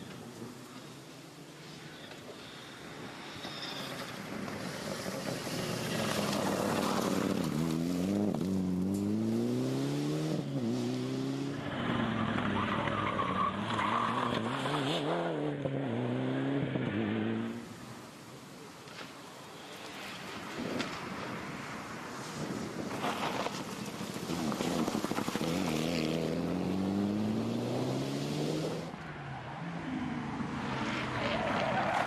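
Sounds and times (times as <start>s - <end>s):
rally car engine at full throttle: 3.7s - 17.6s, 23.5s - 29.0s.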